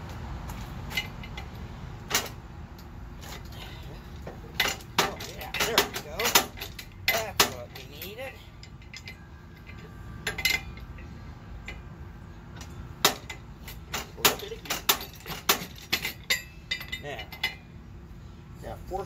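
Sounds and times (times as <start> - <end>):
metal clinks and clanks: 0.5 - 11.9, 12.5 - 17.8.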